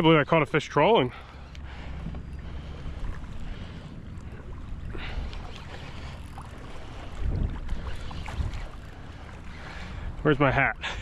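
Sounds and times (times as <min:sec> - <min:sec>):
water lapping against hull: 0:00.0 - 0:11.0
wind buffeting microphone: 0:01.6 - 0:11.0.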